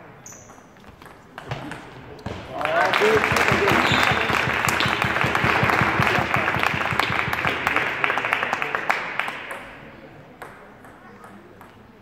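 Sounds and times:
spectators applauding: 2.6 - 9.4.

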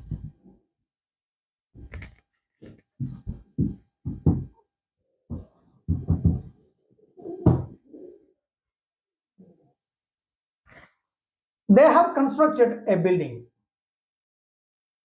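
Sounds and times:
taps and knocks of writing on board: 1.8 - 4.6, 5.3 - 6.6.

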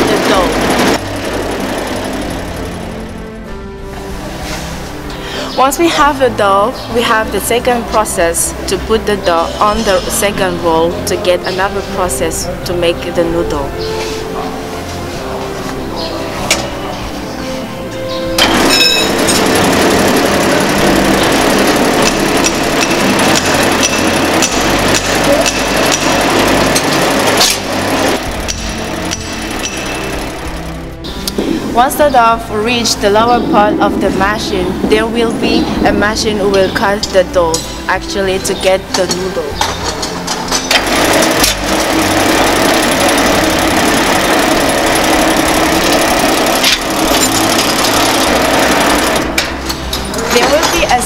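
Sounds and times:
noodle machine whirring: 0.0 - 5.2, 17.8 - 31.7, 39.8 - 51.0
machine clicks: 18.4 - 30.5.

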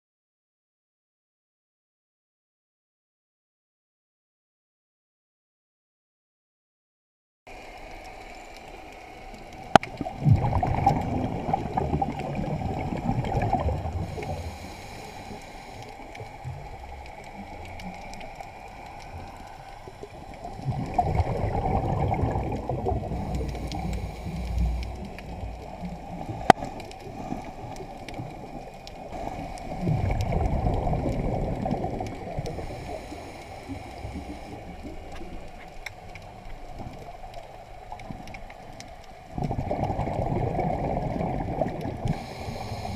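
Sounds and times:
steady low hiss: 7.5 - 39.4
gurgling exhaled bubbles: 9.2 - 42.9.

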